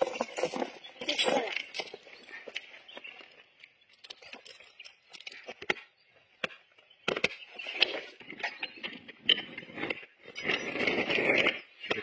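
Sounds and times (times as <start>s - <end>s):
metal tyre chain rattling: 0.0s - 5.5s.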